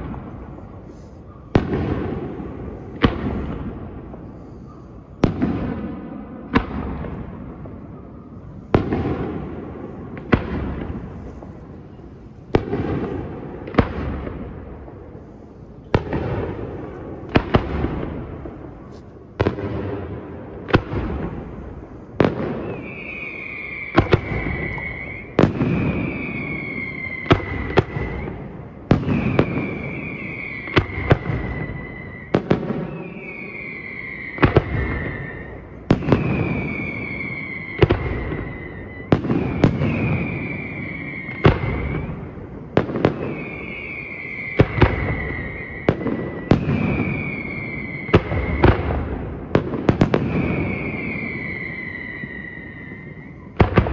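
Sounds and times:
high falling whistle: 22.6s - 28.5s, 29.2s - 42.3s, 43.1s - 48.7s, 50.2s - 53.5s.

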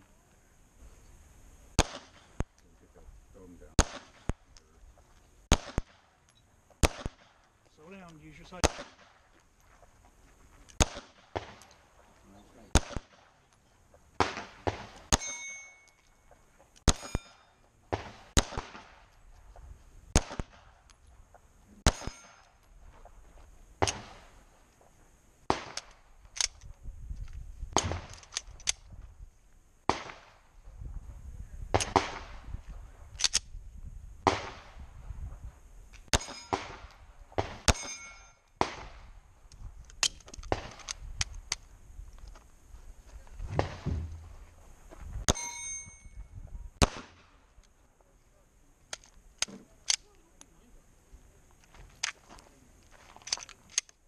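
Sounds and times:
pistol shots: 1.8s - 2.4s, 3.8s - 4.4s, 5.5s - 6.2s, 6.8s - 7.5s, 8.3s - 9.3s, 10.8s - 11.9s, 12.7s - 13.4s, 14.2s - 16.0s, 16.8s - 19.1s, 20.1s - 20.9s, 21.8s - 22.6s, 23.8s - 24.3s, 25.5s - 26.6s, 27.8s - 28.6s, 29.9s - 30.4s, 31.7s - 32.4s, 34.2s - 34.8s, 36.1s - 39.0s, 46.8s - 47.4s
steel plate ringing: 15.1s - 16.0s, 37.7s - 38.4s, 45.3s - 46.2s.

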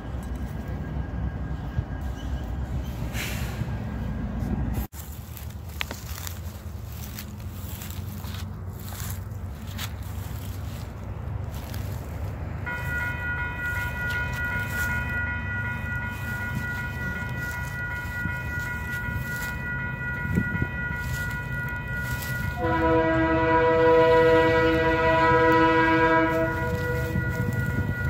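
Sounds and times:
crossing warning bell ringing: 0.0s - 28.0s
locomotive air horn: 12.6s - 28.0s.

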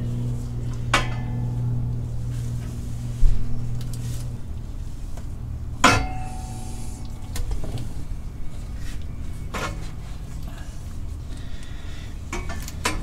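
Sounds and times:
steady low hum: 0.0s - 13.0s
metal clutch parts clanking: 0.1s - 2.8s.

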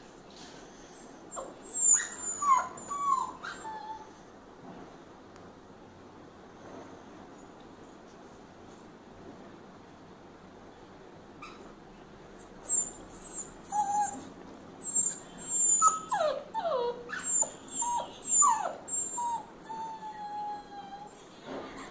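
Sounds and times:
puppy whimpering and whining: 0.9s - 4.2s, 11.4s - 11.7s, 12.4s - 21.9s.

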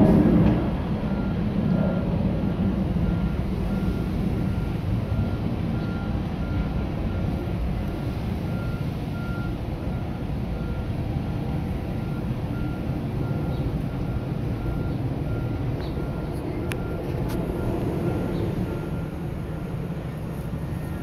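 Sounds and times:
low engine rumble: 0.0s - 21.0s
reversing alarm beeping: 0.5s - 21.0s.

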